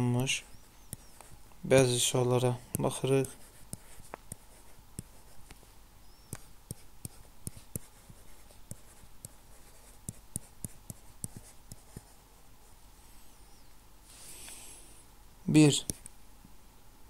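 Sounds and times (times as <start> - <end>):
stylus tapping on a tablet: 0.8 - 1.9, 6.2 - 9.4, 10.0 - 12.0.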